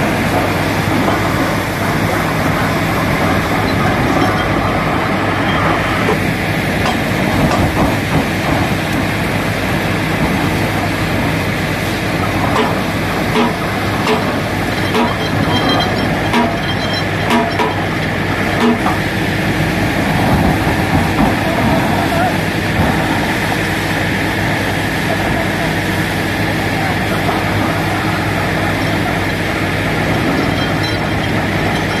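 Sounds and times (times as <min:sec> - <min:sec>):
air blowing water out of borehole: 0:00.0 - 0:32.0
drilling rig engine droning: 0:00.0 - 0:32.0
short metallic knocks: 0:12.5 - 0:19.0.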